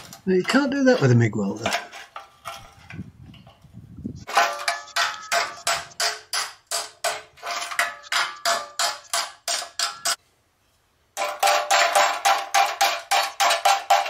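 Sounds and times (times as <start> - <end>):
hammer striking steel: 4.3 - 10.2, 11.2 - 14.0.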